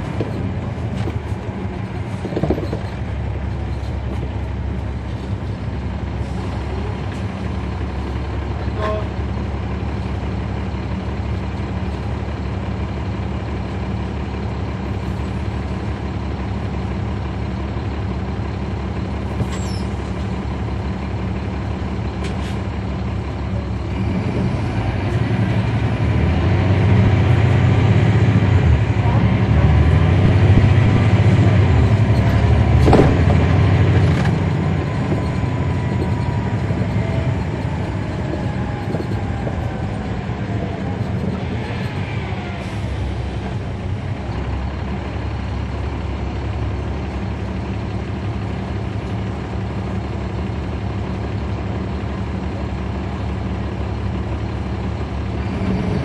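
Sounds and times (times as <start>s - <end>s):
bus diesel engine droning: 0.0s - 56.0s.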